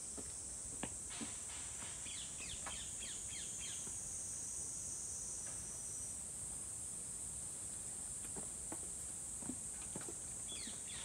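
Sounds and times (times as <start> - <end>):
insect chorus drone: 0.0 - 7.5.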